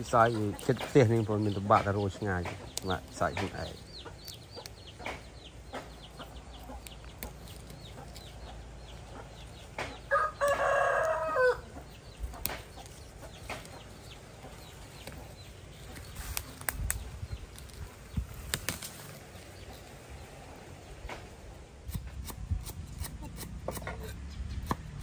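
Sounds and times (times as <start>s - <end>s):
rooster crowing: 10.1s - 11.7s.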